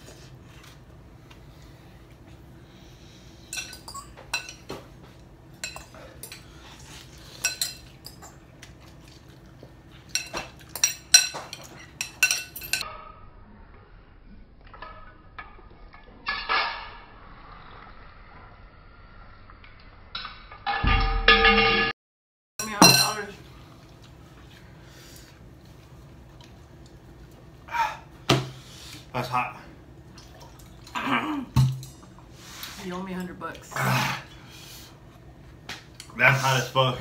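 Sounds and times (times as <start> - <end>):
forks clinking on ceramic bowls: 7.4 - 8.4, 10.1 - 12.8, 22.6 - 23.3.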